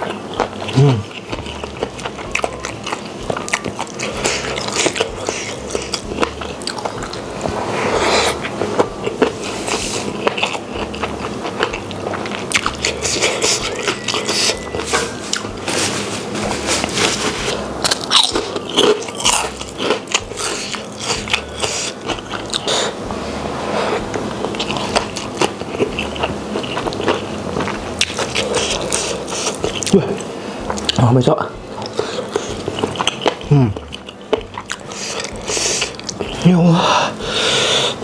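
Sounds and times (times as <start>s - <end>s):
chewing with wet mouth sounds: 0.0s - 23.2s, 23.9s - 36.6s.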